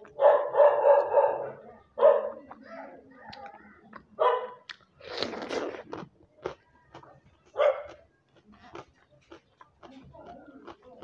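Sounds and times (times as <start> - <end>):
chewing and crunching food: 0.0 - 1.2, 2.0 - 11.0
dog barking: 0.1 - 2.9, 4.2 - 4.7, 7.6 - 8.0.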